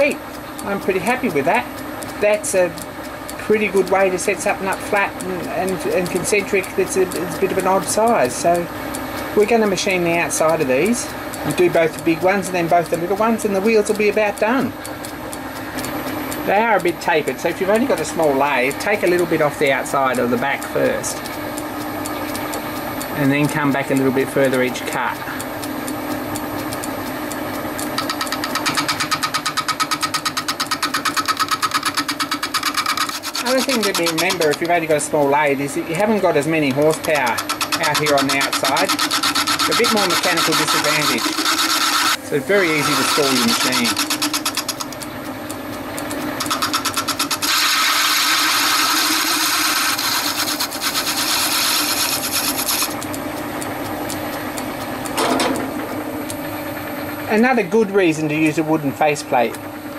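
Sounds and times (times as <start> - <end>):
metal lathe running: 0.0 - 59.9
lathe tool cutting hiss: 27.6 - 44.9, 46.4 - 53.0
fast scraping pulse: 27.8 - 45.0, 46.4 - 53.1.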